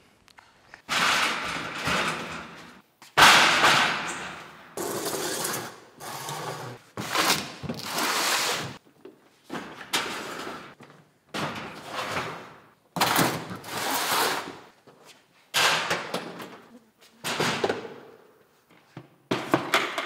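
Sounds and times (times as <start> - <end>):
plastic totes scraping on wire shelves: 4.8 - 8.8, 11.5 - 14.8.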